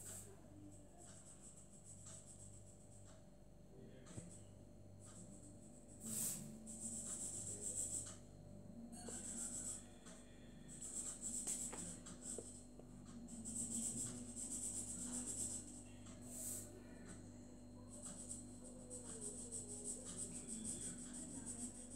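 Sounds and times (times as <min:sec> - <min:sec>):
marker scratching on paper: 0:05.2 - 0:08.2, 0:09.1 - 0:09.9, 0:10.8 - 0:12.6, 0:13.4 - 0:16.7, 0:17.9 - 0:21.9.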